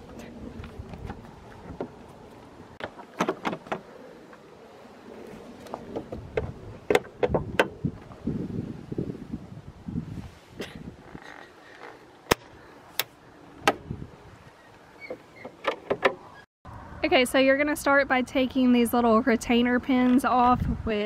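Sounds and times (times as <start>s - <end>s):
hood latch clicks and clunks: 2.8s - 3.9s, 15.0s - 16.4s.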